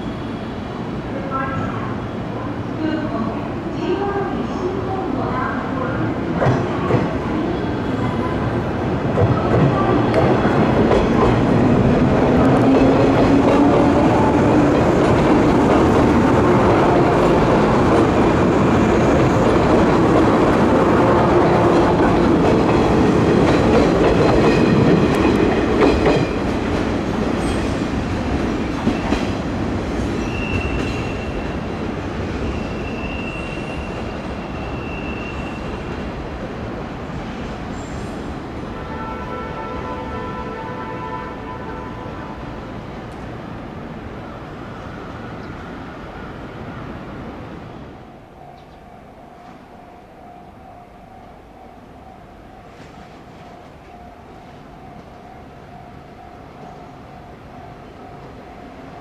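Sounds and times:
high-pitched wheel squeal: 0:32.4 - 0:35.7.

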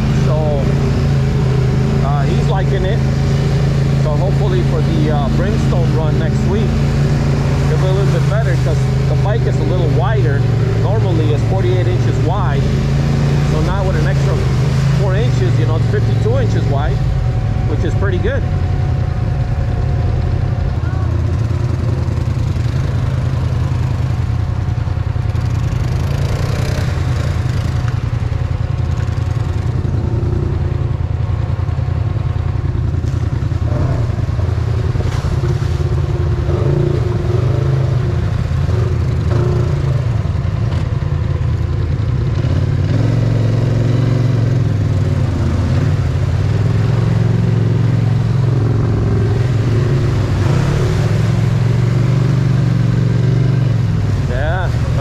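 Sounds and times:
atv engine running: 0:00.0 - 0:55.0
off-road vehicle engines revving: 0:00.0 - 0:55.0.

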